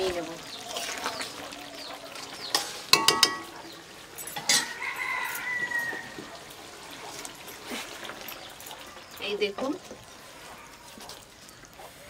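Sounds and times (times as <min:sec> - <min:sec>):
metal cookware clanking: 0:02.2 - 0:05.6
rooster crowing: 0:04.4 - 0:06.5.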